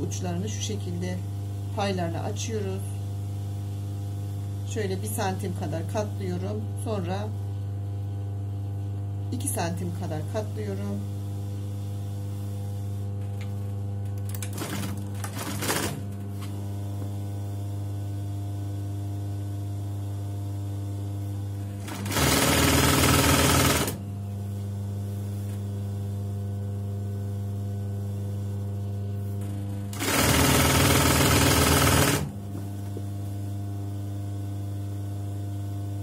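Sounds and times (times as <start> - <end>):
low electric hum: 0.0 - 22.2, 22.8 - 36.0
sewing machine running: 14.3 - 16.1, 21.8 - 24.0, 29.9 - 32.4.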